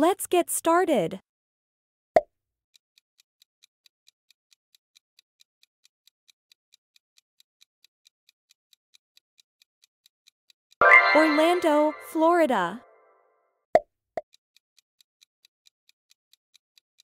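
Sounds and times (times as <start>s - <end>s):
clock-like ticks: 2.7s - 12.7s, 14.2s - 17.0s.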